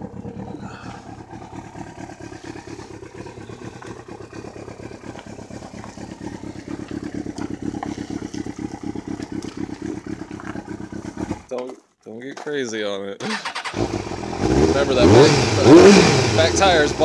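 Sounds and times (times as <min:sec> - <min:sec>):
motorcycle engine idling: 0:00.0 - 0:11.5, 0:13.4 - 0:17.0.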